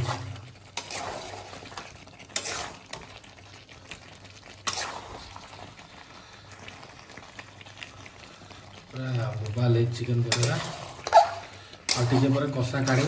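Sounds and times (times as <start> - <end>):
spatula scraping a pan: 0.0 - 3.2, 4.6 - 5.6, 10.3 - 13.0
meat sizzling: 0.0 - 13.0.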